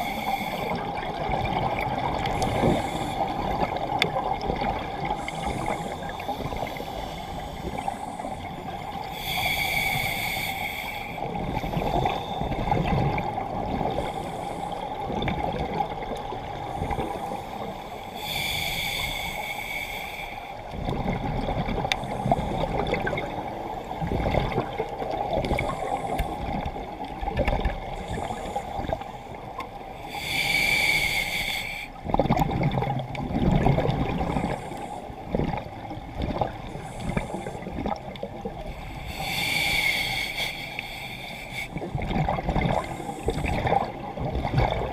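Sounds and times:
hissing regulator inhalations: 0:00.0 - 0:01.0, 0:02.2 - 0:03.8, 0:05.1 - 0:12.7, 0:16.8 - 0:20.8, 0:30.0 - 0:32.0, 0:38.6 - 0:41.9
exhaled bubbles rumbling: 0:00.6 - 0:07.0, 0:11.2 - 0:14.2, 0:14.9 - 0:17.3, 0:20.7 - 0:30.0, 0:32.0 - 0:38.8, 0:41.7 - 0:44.9.

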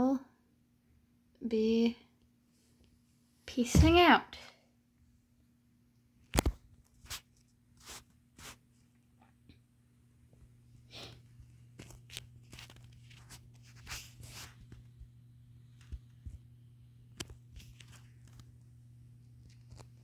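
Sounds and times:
low electrical hum: 0:00.0 - 0:20.0
device handling rustling and clicking: 0:11.8 - 0:13.8.

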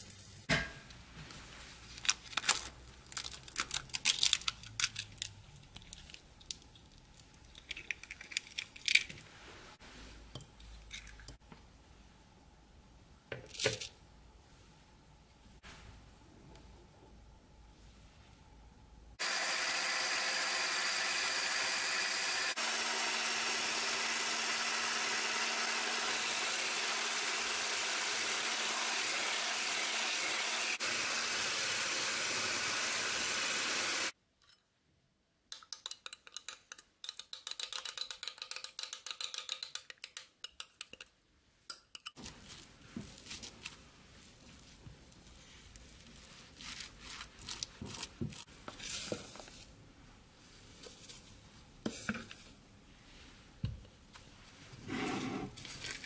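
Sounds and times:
electric whisk motor whine: 0:19.2 - 0:34.1
utensils clicking and scraping bowl: 0:35.6 - 0:41.1.

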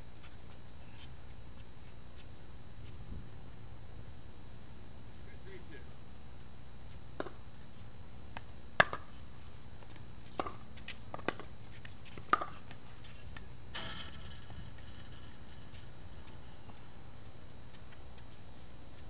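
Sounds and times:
pickleball popping off paddles: 0:07.2 - 0:07.4, 0:08.3 - 0:09.1, 0:09.8 - 0:11.5, 0:12.1 - 0:16.8
scuffing noise: 0:09.1 - 0:13.2, 0:15.6 - 0:19.0.

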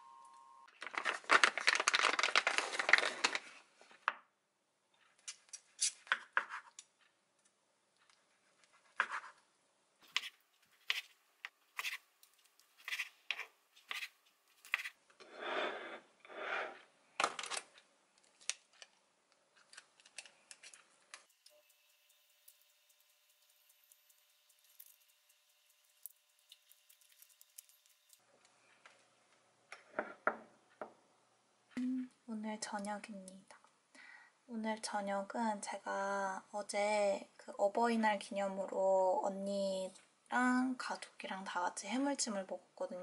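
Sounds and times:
rustling and handling: 0:00.7 - 0:04.1, 0:17.2 - 0:21.7
knife scraping: 0:08.6 - 0:09.4, 0:10.0 - 0:12.1, 0:12.7 - 0:16.8
knife slicing on wooden board: 0:11.8 - 0:12.0.

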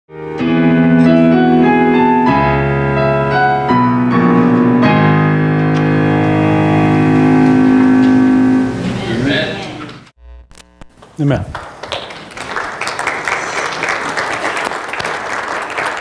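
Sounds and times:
slow keyboard music: 0:00.1 - 0:10.1.

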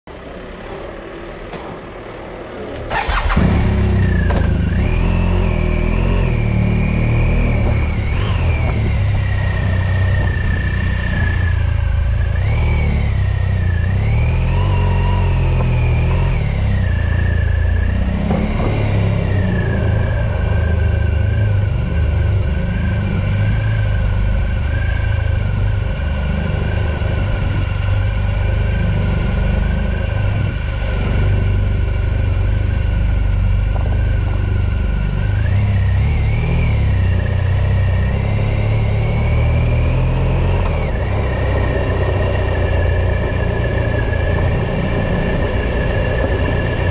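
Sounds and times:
small vehicle motor whine: 0:00.1 - 0:46.9
wind rumble on microphone: 0:07.4 - 0:12.4, 0:15.8 - 0:37.9, 0:40.6 - 0:46.9.

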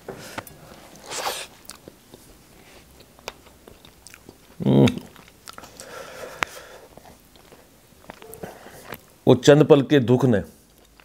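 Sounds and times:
wet chewing and lip smacks: 0:00.4 - 0:02.3, 0:02.9 - 0:09.1
hissing mouth sound: 0:01.0 - 0:01.6.

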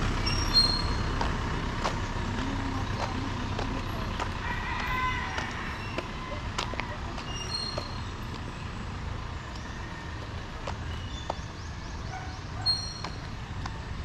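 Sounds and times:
steady low rumble: 0:00.0 - 0:14.0
high chirps: 0:00.2 - 0:01.2.

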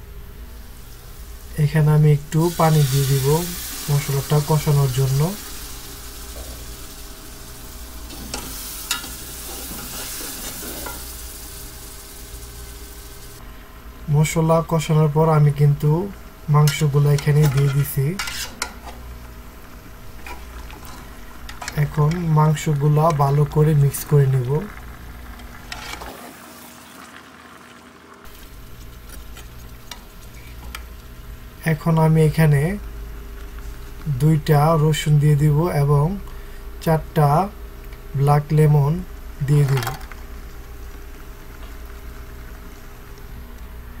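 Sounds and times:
gas burner rumble: 0:00.0 - 0:26.1, 0:28.2 - 0:44.0
spice paste sizzling in a pot: 0:00.3 - 0:13.4, 0:28.3 - 0:31.9
metal spatula scraping a pot: 0:08.1 - 0:11.0, 0:17.4 - 0:18.7.

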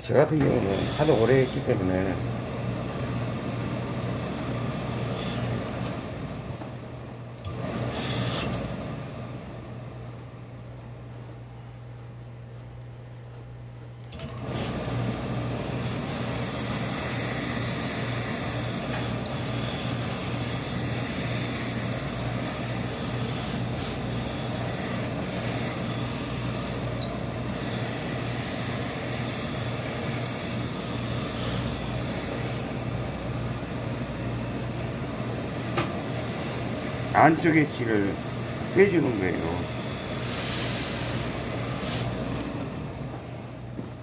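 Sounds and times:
steam press machine humming: 0:00.0 - 0:44.0
steam hissing: 0:07.7 - 0:08.6, 0:14.4 - 0:32.6, 0:35.7 - 0:42.3.

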